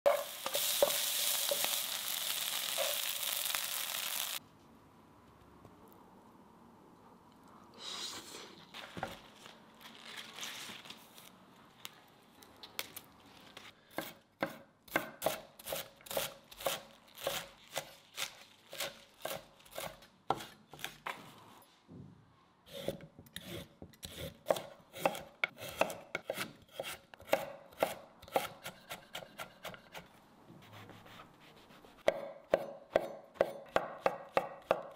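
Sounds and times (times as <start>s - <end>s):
vegetables sizzling in a wok: 0.1s - 4.4s
knife chopping on wooden board: 13.9s - 17.9s, 22.8s - 30.0s, 32.0s - 34.9s.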